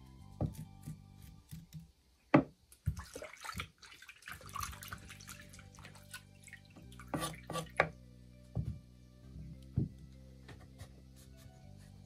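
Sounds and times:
water splashing and dripping: 0:02.7 - 0:07.9
knife knocking on cutting board: 0:09.8 - 0:10.0.

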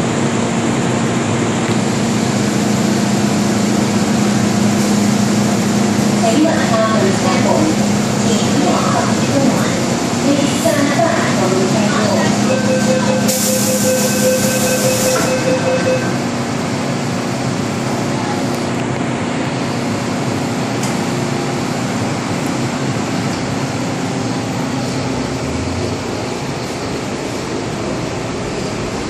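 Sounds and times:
train running noise: 0:00.0 - 0:29.0
door-closing warning tone: 0:12.0 - 0:16.3
loud door hiss: 0:13.3 - 0:15.3.

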